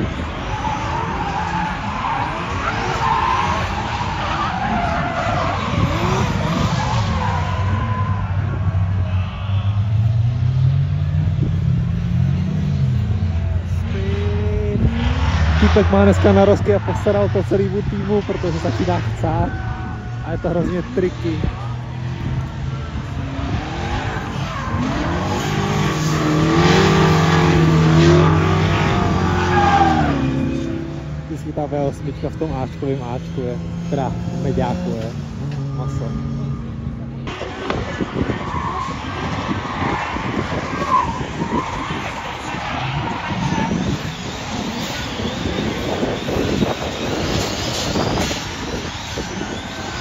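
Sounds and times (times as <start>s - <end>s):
tyre squeal: 0.0s - 10.7s, 14.9s - 31.2s, 32.6s - 36.8s, 37.4s - 50.0s
car engines revving hard: 0.0s - 50.0s
tyre noise: 32.6s - 50.0s.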